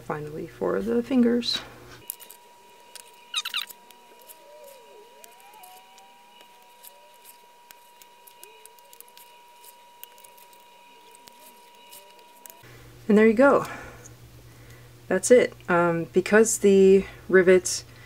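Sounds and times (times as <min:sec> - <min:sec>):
plastic parts squeaking: 0:02.0 - 0:12.6.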